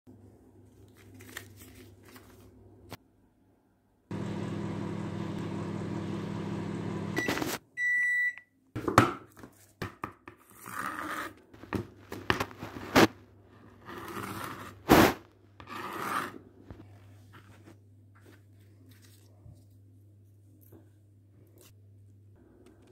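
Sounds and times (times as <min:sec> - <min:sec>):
microwave oven humming: 0:04.1 - 0:07.5
microwave beep: 0:04.2 - 0:08.6.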